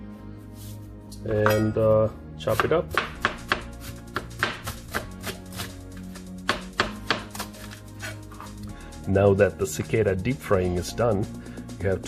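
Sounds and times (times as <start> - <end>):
background music: 0.0 - 12.0
knife chopping on cutting board: 2.5 - 5.7, 6.4 - 8.5.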